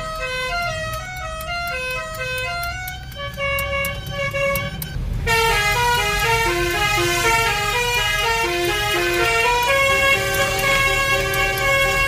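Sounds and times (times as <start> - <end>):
multi-trumpet horn playing tune: 3.2 - 12.0.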